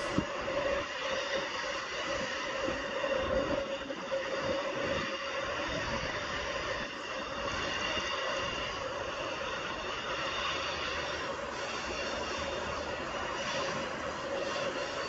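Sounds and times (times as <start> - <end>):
constant whining tone: 0.0 - 15.0
train wheels rumbling on track: 0.0 - 15.0.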